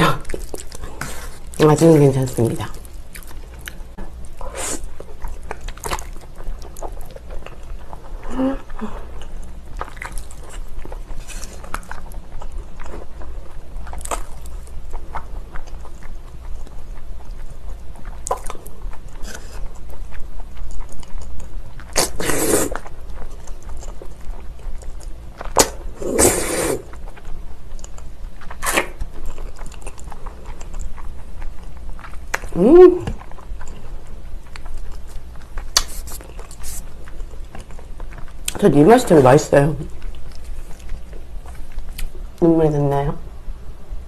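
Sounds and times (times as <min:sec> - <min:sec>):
wet chewing smacks: 0:02.7 - 0:08.1, 0:09.1 - 0:25.8
loud noodle slurps: 0:22.0 - 0:22.8, 0:26.0 - 0:26.9.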